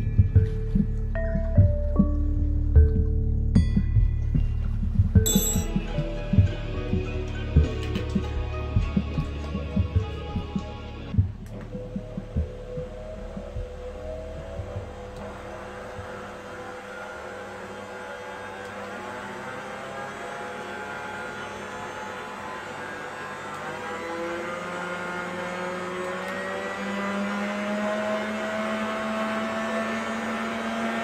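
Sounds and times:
stand mixer motor whine: 14.1s - 31.0s.

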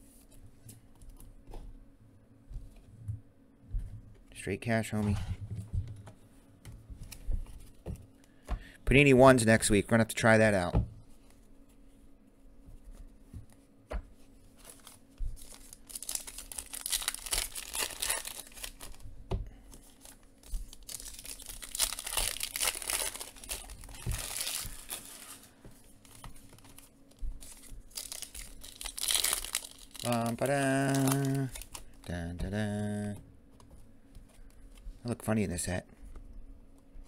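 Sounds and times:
foil wrappers crinkling and tearing: 14.6s - 19.1s, 19.7s - 32.2s.

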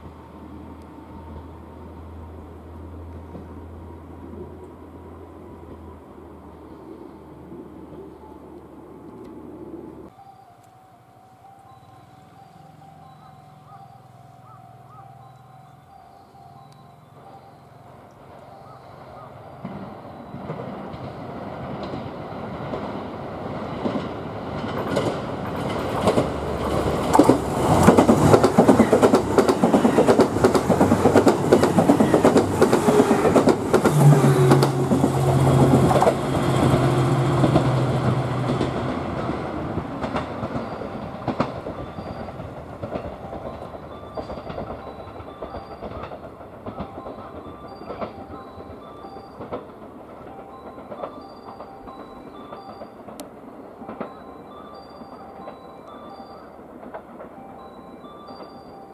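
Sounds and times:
diesel train engine: 0.0s - 58.9s
wheels clattering over rail joints: 16.6s - 58.9s.

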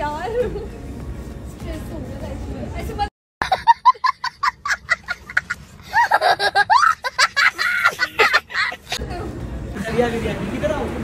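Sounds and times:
man laughing hysterically: 3.4s - 9.0s.

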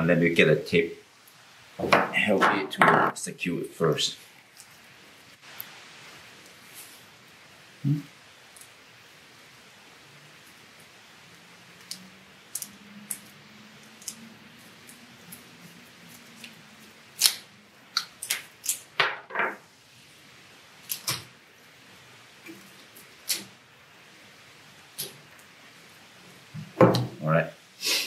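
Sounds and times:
tape pulled off roll and torn: 16.1s - 19.0s.

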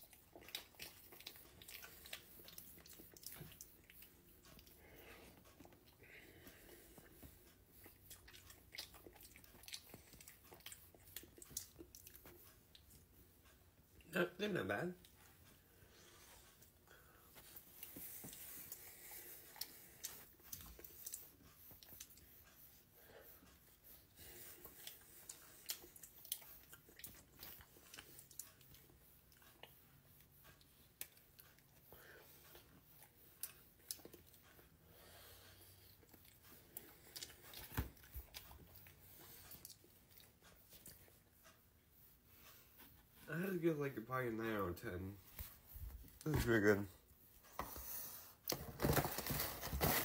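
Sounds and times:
person chewing food: 0.0s - 13.1s, 15.0s - 41.6s.

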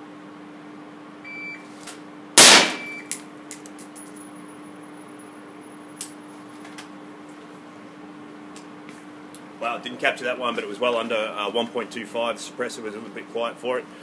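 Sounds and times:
shot timer beep: 2.8s - 3.2s
metal casing clinking on concrete: 3.1s - 5.3s.

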